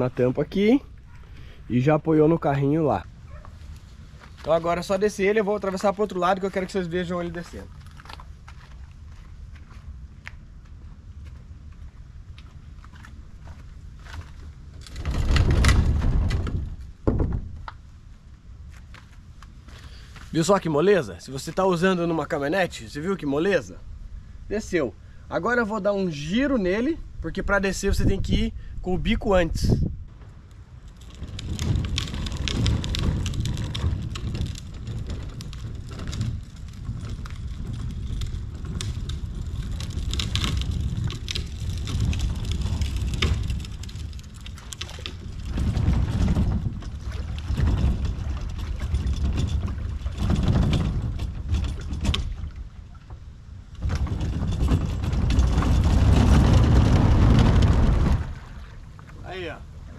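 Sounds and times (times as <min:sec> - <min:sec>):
crackles and knocks: 0:03.0 - 0:20.4, 0:30.0 - 0:59.9
wind buffeting microphone: 0:09.0 - 0:17.8, 0:25.4 - 0:59.9
water splashing: 0:56.3 - 0:59.9.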